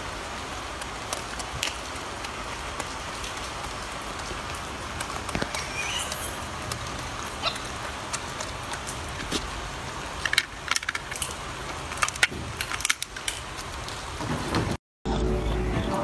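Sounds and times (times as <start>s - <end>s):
steady hiss: 0.0s - 7.7s
crackly clicks and crunches: 0.7s - 14.2s.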